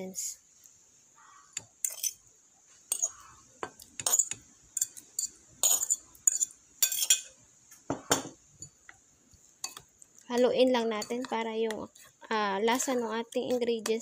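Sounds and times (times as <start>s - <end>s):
metal utensils clinking on ceramic: 1.6s - 2.2s, 2.9s - 3.2s, 4.0s - 7.4s, 9.6s - 11.3s.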